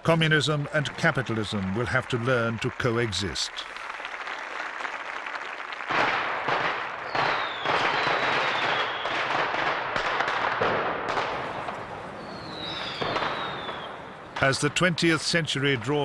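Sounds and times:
fireworks crackling and banging: 0.0s - 16.0s
falling firework whistle: 7.0s - 9.3s, 12.2s - 14.1s.

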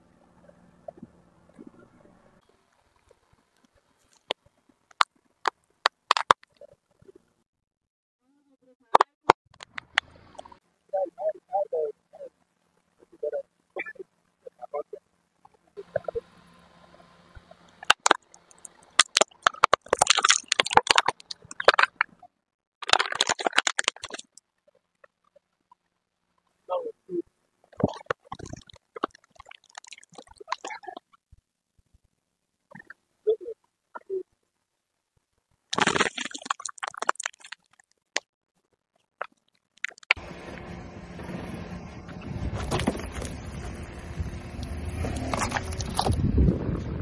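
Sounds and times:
car engine idling: 0.0s - 3.6s, 9.6s - 19.0s, 40.2s - 47.0s
outdoor background noise: 0.0s - 7.4s, 8.2s - 47.0s
plastic cases cracking under tyre: 17.8s - 22.0s.

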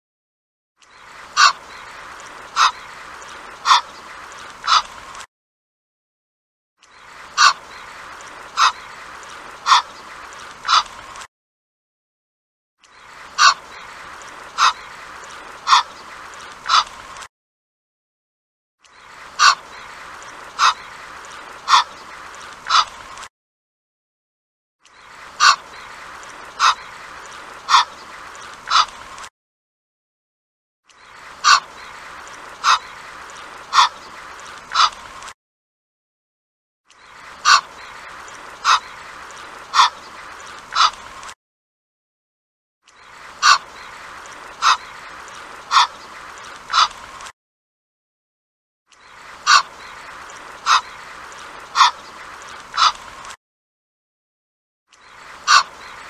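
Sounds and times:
goose calling: 1.4s - 1.9s, 2.6s - 2.9s, 3.6s - 4.0s, 4.6s - 4.9s, 7.4s - 7.7s, 8.6s - 8.9s, 9.6s - 10.0s, 10.6s - 10.9s, 13.4s - 13.8s, 15.6s - 16.0s, 16.6s - 16.9s, 19.4s - 19.8s, 20.6s - 20.9s, 21.6s - 22.0s, 25.4s - 25.9s, 26.5s - 27.0s, 27.6s - 28.0s, 28.7s - 29.0s, 31.4s - 31.7s, 32.6s - 32.9s, 33.7s - 34.0s, 37.4s - 38.0s, 38.6s - 39.1s, 39.7s - 41.0s, 43.4s - 44.0s, 44.6s - 44.9s, 45.7s - 46.1s, 46.7s - 47.0s, 49.4s - 51.0s, 51.7s - 52.1s, 52.7s - 53.0s, 55.4s - 56.0s.

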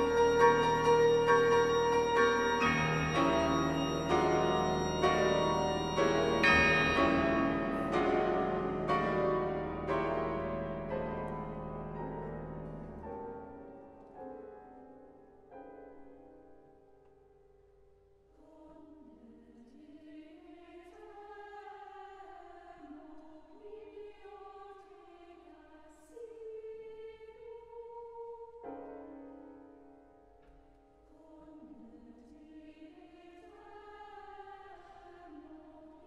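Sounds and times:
choir singing held chords: 0.0s - 11.0s.

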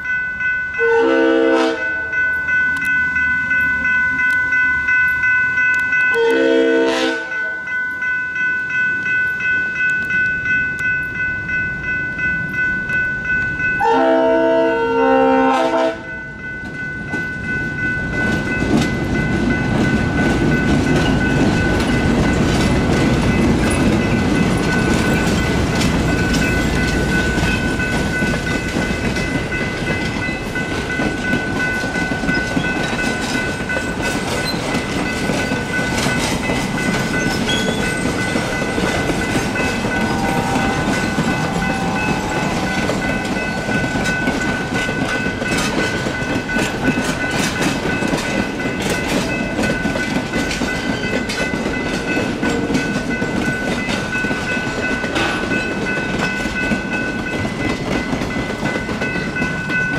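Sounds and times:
electronic crossing bells ringing: 0.0s - 59.9s
railcar wheels clicking over joints: 16.6s - 59.9s.

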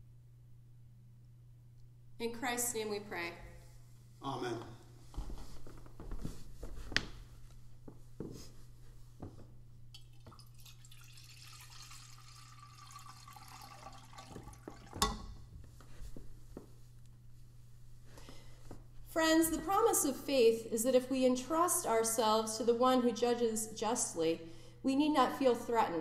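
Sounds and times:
water pouring into metal font: 10.0s - 15.3s.

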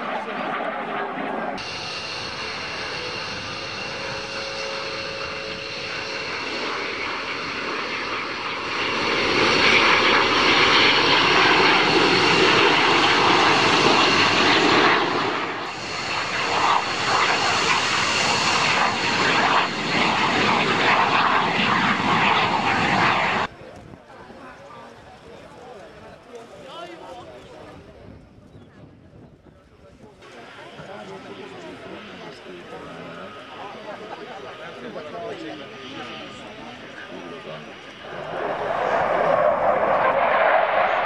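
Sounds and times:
jets flying past: 0.0s - 23.5s, 34.5s - 41.0s.

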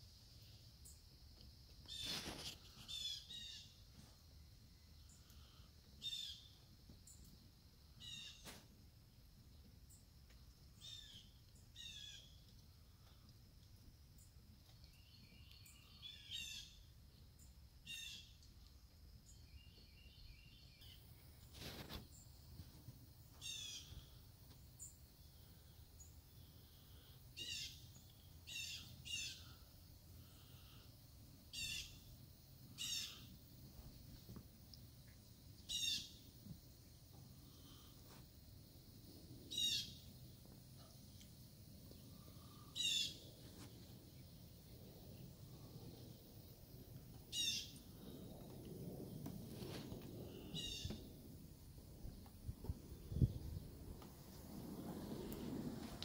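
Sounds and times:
faint outdoor background: 0.0s - 56.0s
small birds chirping: 10.7s - 13.3s, 14.2s - 22.4s, 23.2s - 30.9s, 32.7s - 33.5s, 34.7s - 38.2s.

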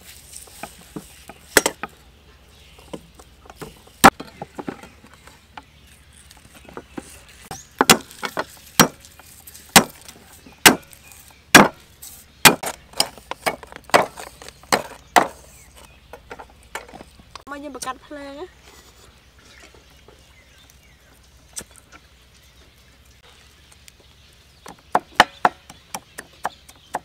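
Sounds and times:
cleaver chopping on wooden board: 7.5s - 9.0s, 9.7s - 10.0s, 10.6s - 11.8s, 12.4s - 15.4s, 24.6s - 27.0s.

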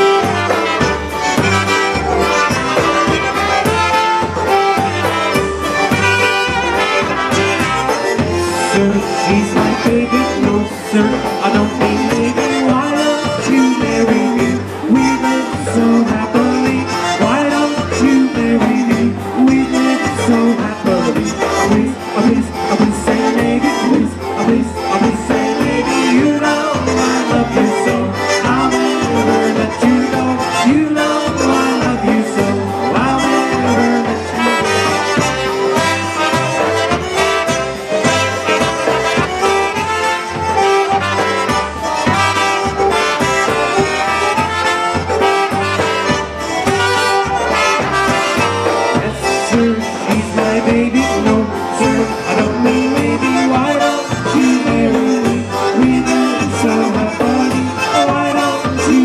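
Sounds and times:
polka band playing: 0.0s - 59.0s
trumpets playing melody: 0.0s - 59.0s.

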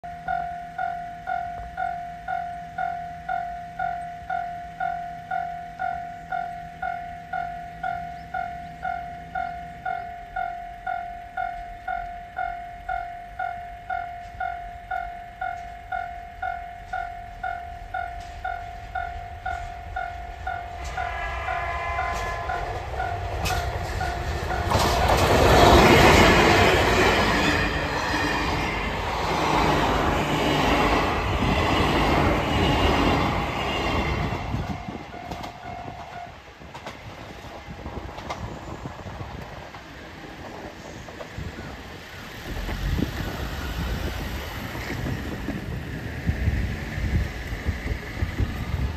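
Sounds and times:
level crossing warning bell: 0.0s - 36.6s
diesel train passing: 0.0s - 48.9s
short train horn: 20.4s - 25.0s.

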